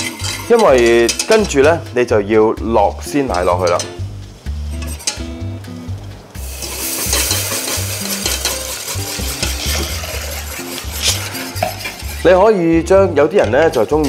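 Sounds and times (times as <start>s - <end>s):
metal whisk stirring: 0.0s - 1.7s, 3.1s - 3.9s, 6.4s - 14.0s
roux sizzling: 0.0s - 14.0s
soft background music: 0.0s - 14.0s.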